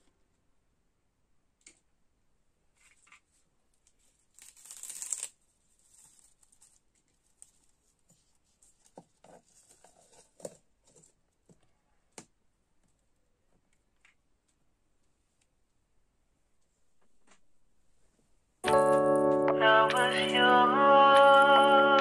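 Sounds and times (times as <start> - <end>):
leaves rustling and tearing: 4.3 - 7.6.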